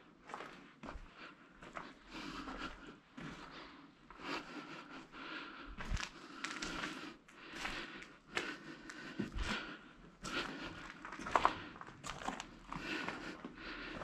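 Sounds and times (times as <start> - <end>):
footsteps crunching on debris: 5.8 - 14.0.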